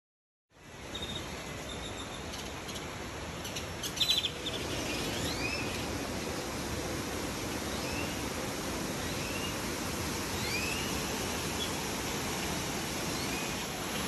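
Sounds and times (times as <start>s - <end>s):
whistled bird calls: 10.4s - 10.9s.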